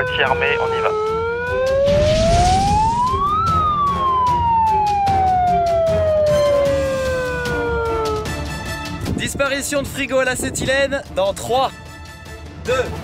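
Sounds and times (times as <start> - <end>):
warning siren winding: 3.4 - 8.3.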